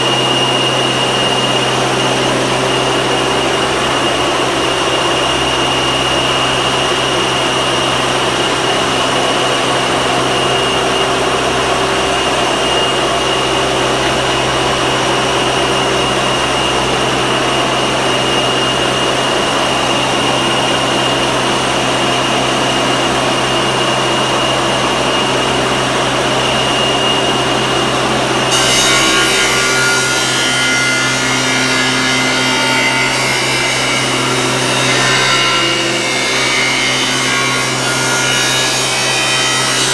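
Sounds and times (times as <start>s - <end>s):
metal grinding and cutting: 25.2s - 39.9s.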